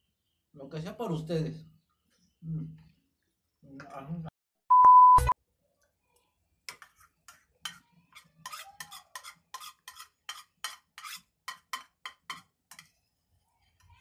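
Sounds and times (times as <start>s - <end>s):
loud steady beep: 4.7s - 5.4s.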